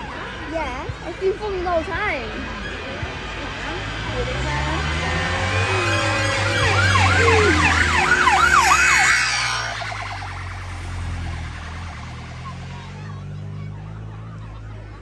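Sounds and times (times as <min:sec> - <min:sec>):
car engines droning: 0:00.0 - 0:15.0
police siren yelping: 0:04.9 - 0:15.0.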